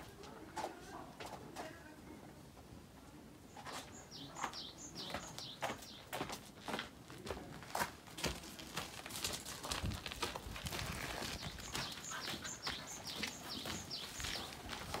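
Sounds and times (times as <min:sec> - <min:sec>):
bird chirping: 0:03.5 - 0:06.2, 0:11.2 - 0:14.9
footsteps crunching on gravel: 0:04.4 - 0:15.0.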